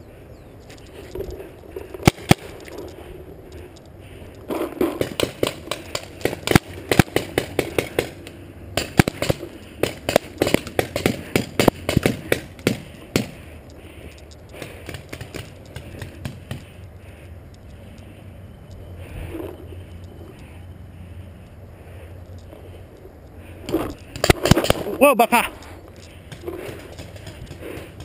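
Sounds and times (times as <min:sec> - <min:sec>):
paintball marker firing: 0:02.0 - 0:02.5, 0:04.5 - 0:13.5, 0:14.6 - 0:16.7, 0:23.7 - 0:25.0, 0:26.2 - 0:28.0.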